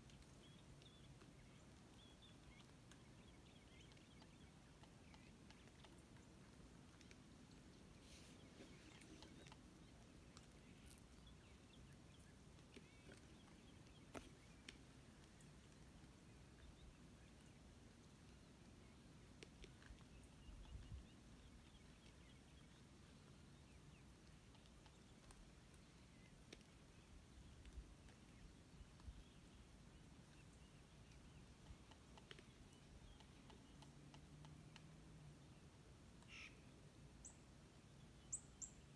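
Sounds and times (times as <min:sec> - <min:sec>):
faint ticks: 0:24.2 - 0:29.4, 0:30.3 - 0:35.1
soft clicks: 0:31.1 - 0:34.9.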